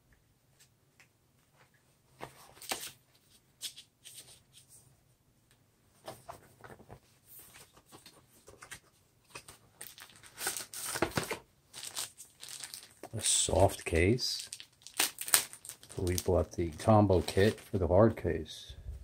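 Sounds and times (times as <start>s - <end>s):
packaging rustling: 6.1s - 17.8s
packaging clicks: 9.4s - 17.7s.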